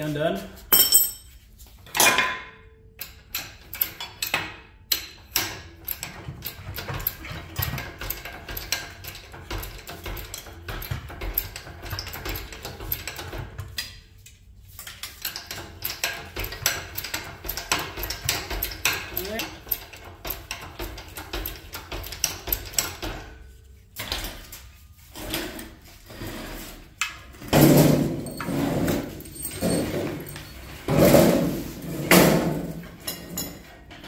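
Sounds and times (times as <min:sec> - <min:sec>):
metal clanking and knocking: 0:27.3 - 0:34.0.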